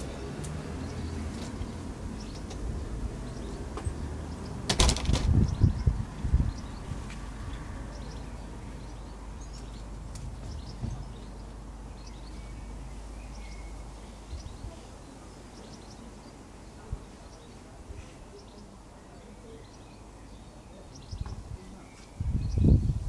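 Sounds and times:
bird chirps: 0:07.5 - 0:16.4.

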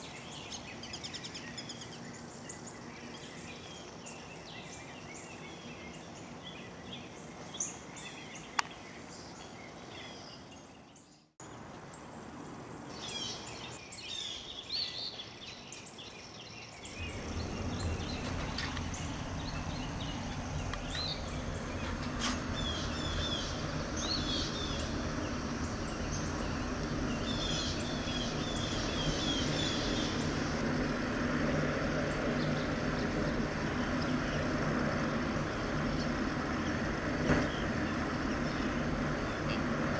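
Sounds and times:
birds chirping: 0:12.9 - 0:39.9
low industrial drone: 0:16.8 - 0:39.9
high whine: 0:16.9 - 0:39.9.

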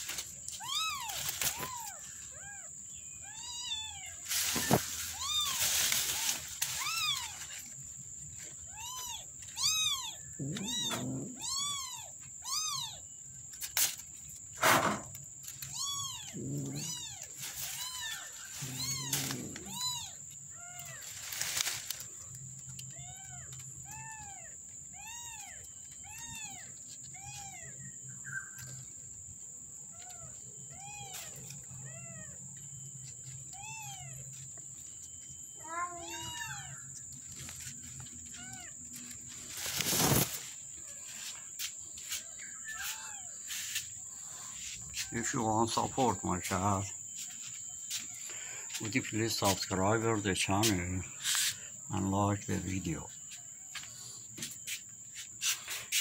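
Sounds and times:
high insect drone: 0:00.0 - 0:56.0
kitten mewing: 0:08.8 - 0:13.0, 0:15.7 - 0:20.2.

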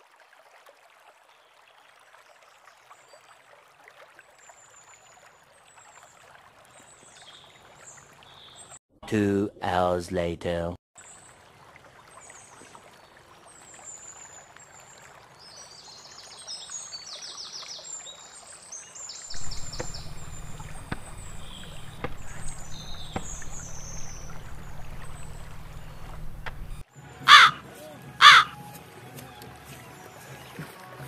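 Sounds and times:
low steady rumble: 0:19.3 - 0:26.8
small birds chirping: 0:19.3 - 0:26.8.

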